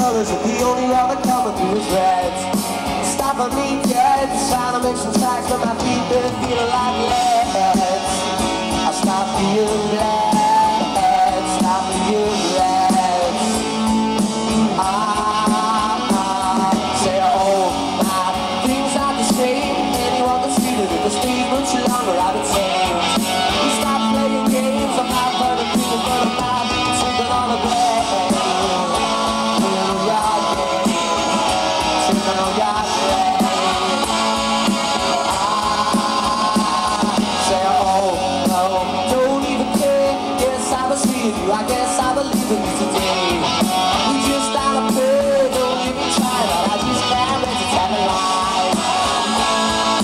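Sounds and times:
drum kit: 0:00.0 - 0:50.0
electric guitars: 0:00.0 - 0:50.0
man singing: 0:00.0 - 0:50.0.

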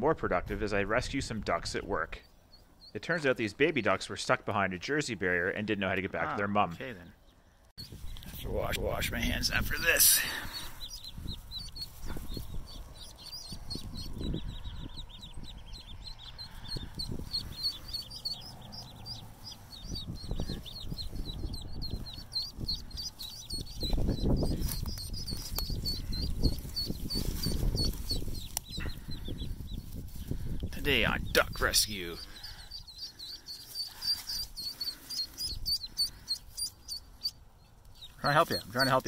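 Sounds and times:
ducklings peeping: 0:00.8 - 0:39.0
rustling in grass: 0:09.7 - 0:14.0, 0:23.1 - 0:28.8, 0:29.5 - 0:30.6, 0:33.5 - 0:35.4.

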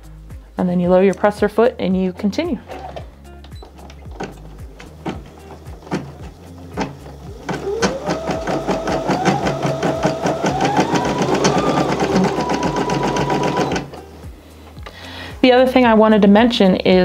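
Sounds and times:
embroidery machine stitching: 0:03.6 - 0:14.0.

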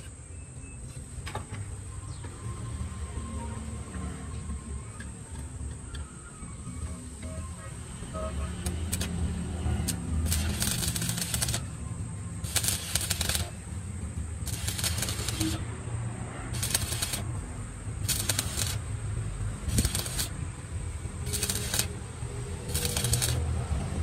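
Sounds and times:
steady low hum: 0:04.4 - 0:24.0
welding arc crackling: 0:08.0 - 0:15.8, 0:16.5 - 0:24.0.

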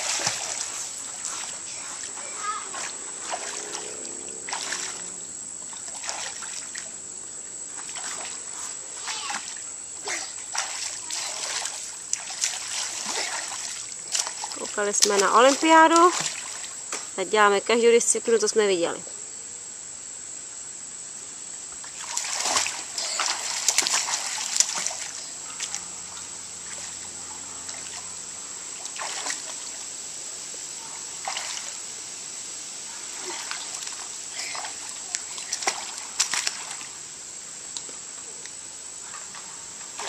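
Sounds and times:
child splashing in pool water: 0:00.0 - 0:07.0, 0:07.7 - 0:17.1, 0:21.8 - 0:25.8, 0:28.8 - 0:29.8, 0:30.8 - 0:31.8, 0:32.9 - 0:37.0, 0:39.2 - 0:40.0
insect chirring: 0:00.0 - 0:40.0.

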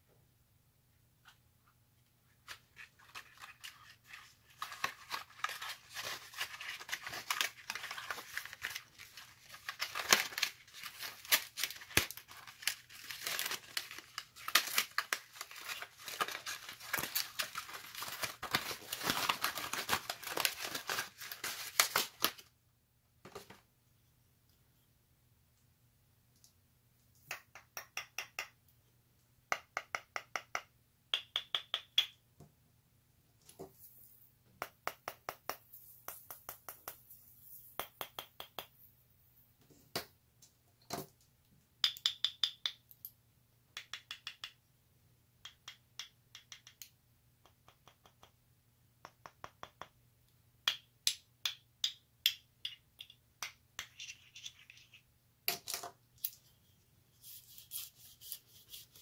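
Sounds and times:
plastic wrap crinkling: 0:02.7 - 0:22.5.

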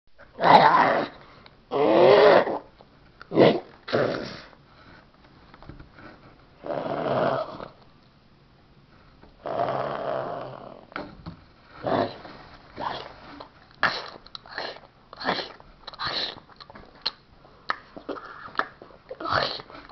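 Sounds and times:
small dog play-growling and snorting: 0:03.3 - 0:04.5.

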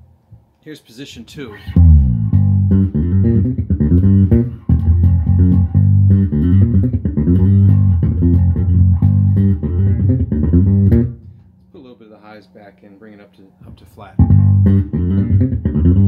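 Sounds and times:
fretless bass guitar: 0:01.6 - 0:11.8, 0:13.6 - 0:16.0.

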